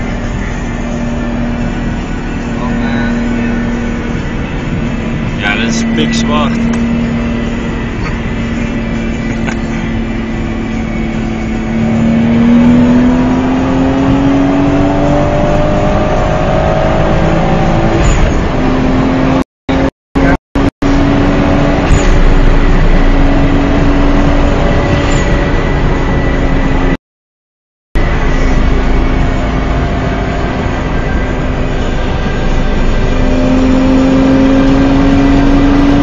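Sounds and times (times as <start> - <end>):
car engine accelerating hard: 0.0 - 27.0, 28.0 - 36.0.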